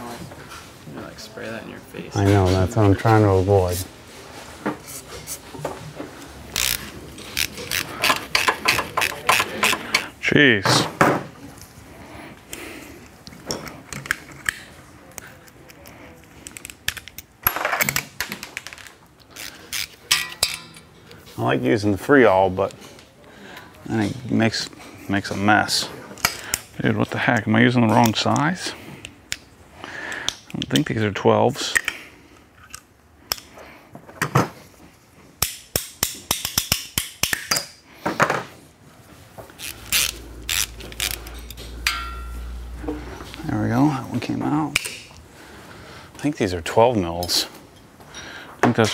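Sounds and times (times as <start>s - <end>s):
socket ratchet clicking: 6.5s - 10.1s, 39.6s - 41.9s
metal tools clinking on bench: 20.1s - 21.0s, 41.0s - 42.6s.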